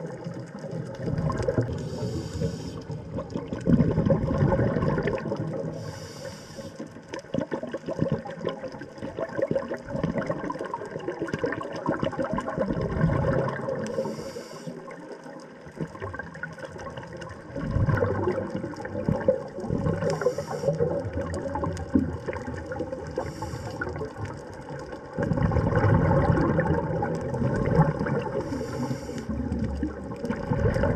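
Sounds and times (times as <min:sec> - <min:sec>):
underwater bubbling and gurgling: 0:00.0 - 0:30.9.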